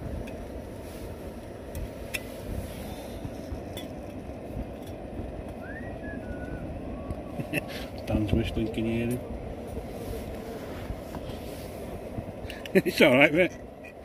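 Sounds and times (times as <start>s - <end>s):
gas stove flame rushing: 0.0s - 14.0s
faint whistle: 5.6s - 7.4s.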